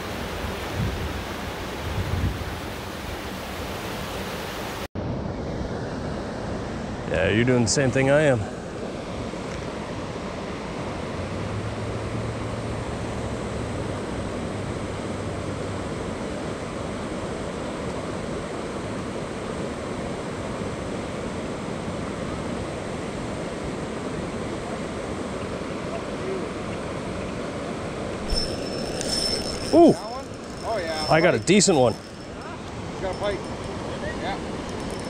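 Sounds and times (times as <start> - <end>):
stream rushing over shallows: 0.0 - 4.9.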